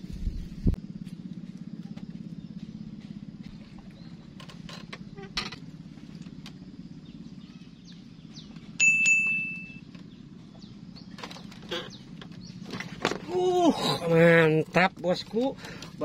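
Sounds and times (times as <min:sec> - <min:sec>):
low motor hum: 0:00.0 - 0:16.0
bite indicator ding: 0:08.8 - 0:09.8.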